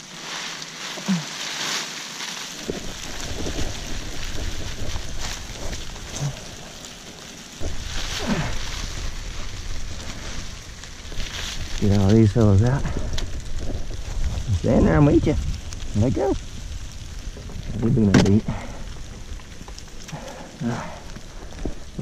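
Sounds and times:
mesh sack rustling: 0.0 - 6.9, 7.5 - 12.9
crawfish clicking as they tumble: 0.0 - 22.0.

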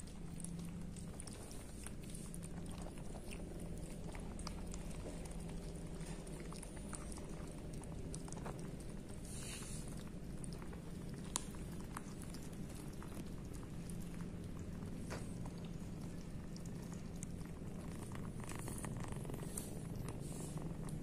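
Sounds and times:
cat purring: 0.0 - 21.0
kittens chewing and lapping: 0.0 - 21.0.

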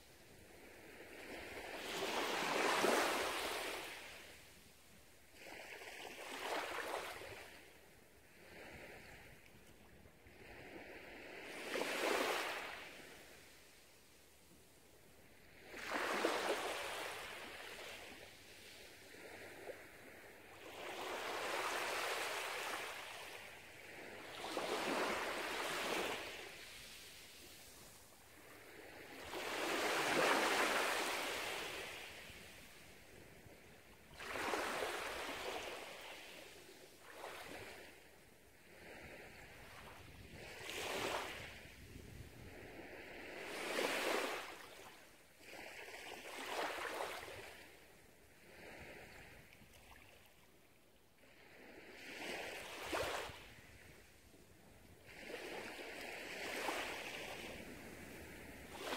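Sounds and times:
small waves washing on sand: 0.0 - 50.4, 51.2 - 58.9.

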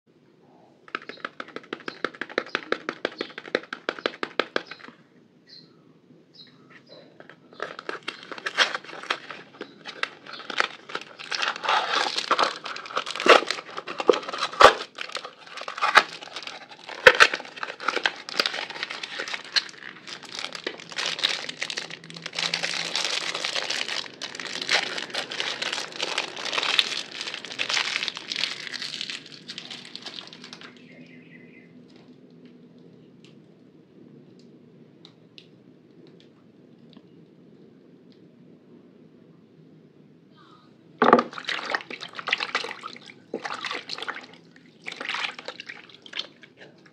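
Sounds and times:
paper crinkling and tearing: 7.2 - 30.9.

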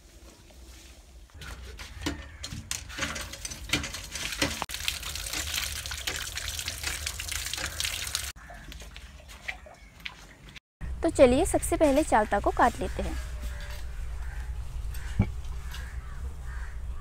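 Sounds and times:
tap water pouring and splashing: 1.4 - 10.6.

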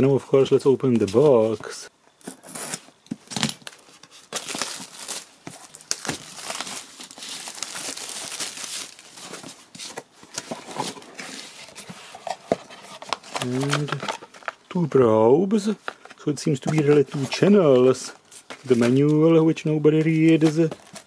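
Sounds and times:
plastic packaging crinkling: 2.5 - 11.6, 12.2 - 14.8.

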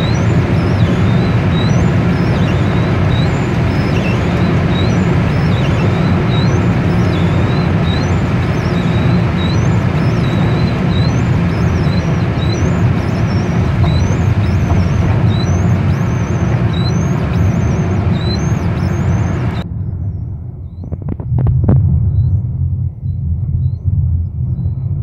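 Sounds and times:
car engine drone: 0.0 - 25.0
road and wind noise: 0.0 - 25.0
sharp knocks: 8.7 - 18.1.

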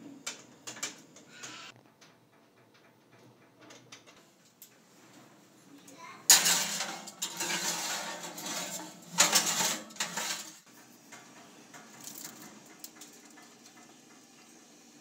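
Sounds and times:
metal pan scraping on oven rack: 6.3 - 10.7.

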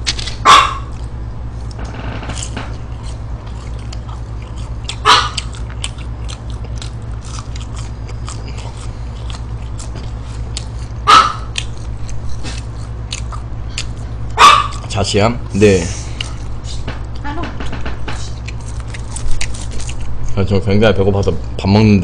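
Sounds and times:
close chewing and crunching: 0.0 - 21.3
low hum: 0.0 - 22.0
small dog barking: 0.4 - 1.0, 5.0 - 5.6, 11.0 - 11.6, 14.4 - 14.9.

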